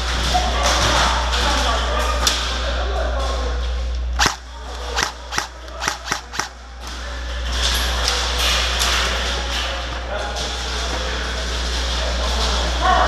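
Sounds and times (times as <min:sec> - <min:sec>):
airsoft gunshots: 0:04.2 - 0:06.6.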